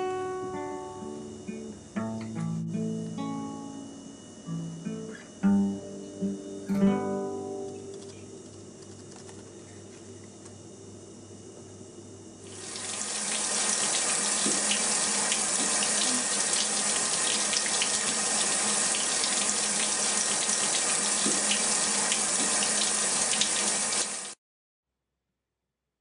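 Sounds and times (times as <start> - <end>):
running water: 12.4 - 24.4.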